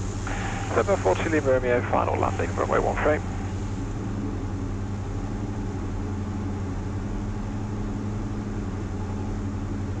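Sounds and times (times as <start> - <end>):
aircraft engines and propellers droning: 0.0 - 10.0.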